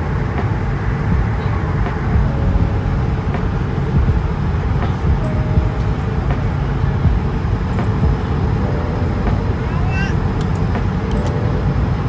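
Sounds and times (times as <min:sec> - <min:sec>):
airliner cabin noise: 0:00.0 - 0:12.0.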